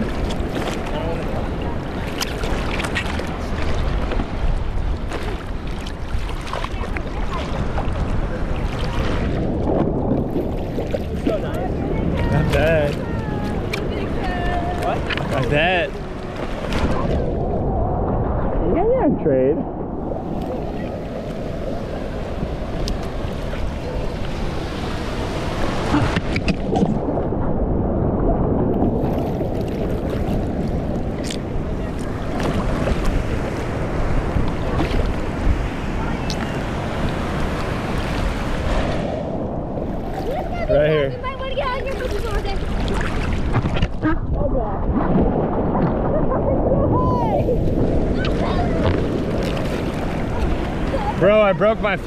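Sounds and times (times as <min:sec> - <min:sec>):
small splashes: 0:00.0 - 0:04.3, 0:05.0 - 0:09.4, 0:41.6 - 0:44.2
ocean water sloshing: 0:00.0 - 0:52.0
small waves breaking: 0:00.0 - 0:52.0
wind buffeting microphone: 0:00.0 - 0:52.0.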